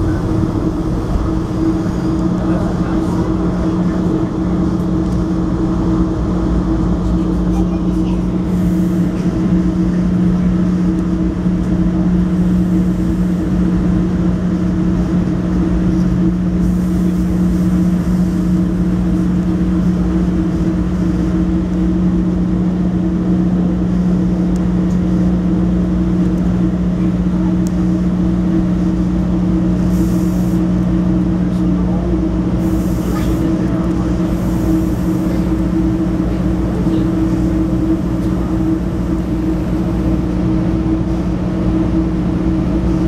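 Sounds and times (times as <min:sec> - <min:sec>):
background rumble: 0:00.0 - 0:43.0
vehicle hum: 0:00.0 - 0:43.0.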